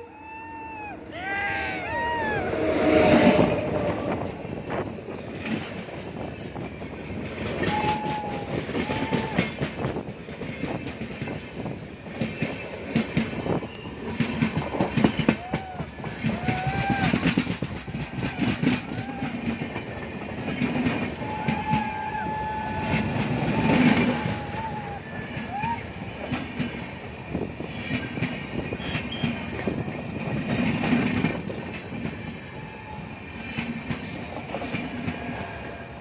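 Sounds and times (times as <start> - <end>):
high rising and falling tones: 0.0 - 4.6
train rumbling past: 0.0 - 36.0.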